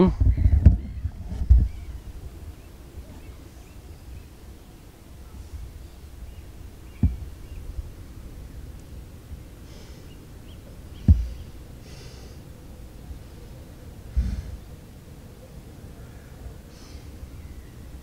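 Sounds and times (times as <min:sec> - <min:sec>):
soft breathing: 0:09.6 - 0:10.2, 0:11.1 - 0:12.6, 0:14.1 - 0:14.7, 0:15.9 - 0:17.4.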